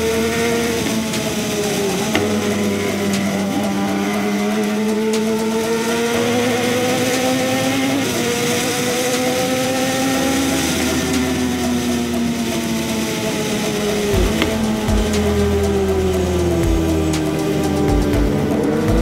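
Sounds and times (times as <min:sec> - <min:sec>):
motorcycle engine cruising: 0:00.0 - 0:19.0.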